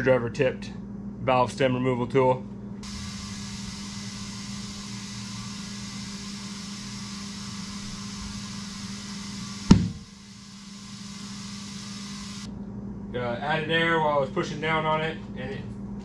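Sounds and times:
steady hum: 0.0 - 16.0
compressed air hissing into tyre: 2.8 - 12.5
tyre bead popping bang: 9.7 - 10.0.

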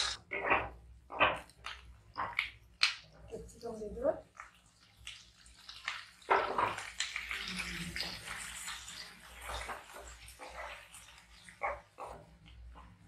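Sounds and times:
vegetables sizzling in oil: 4.2 - 12.7
spatula scraping pan: 6.2 - 13.0.

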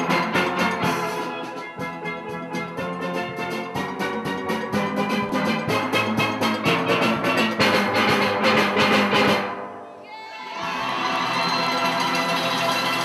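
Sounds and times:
drum rhythm section: 0.0 - 9.7
steel pans playing calypso: 0.0 - 9.7.

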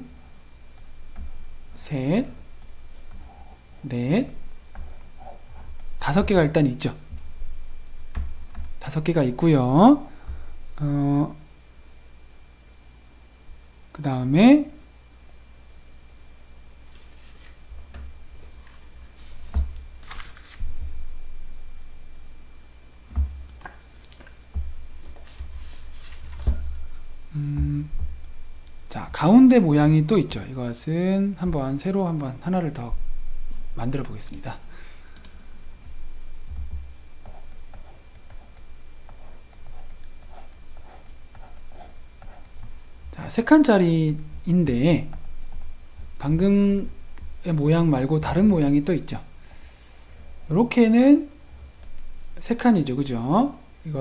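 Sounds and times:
faint electrical hum: 0.0 - 54.0
scratchy rustle: 16.9 - 17.6, 18.6 - 20.7, 25.0 - 26.4
dull low thumps on desk: 19.4 - 19.9, 23.1 - 23.8, 24.5 - 25.7, 27.5 - 28.4, 36.4 - 39.7
pen scratching: 37.2 - 42.7.

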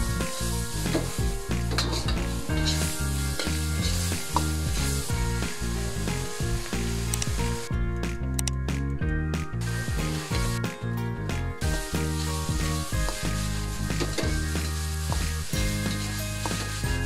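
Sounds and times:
meat sizzling in a wok: 0.0 - 7.7, 9.6 - 17.0
light background music: 0.0 - 17.0
metal spatula scraping wok: 0.8 - 5.1, 11.9 - 17.0.

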